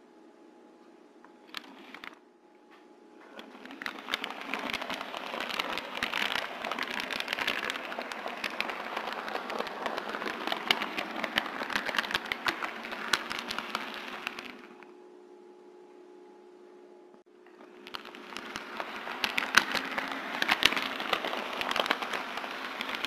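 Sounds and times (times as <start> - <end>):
model train wheels rattling: 3.4 - 14.8, 17.5 - 23.0.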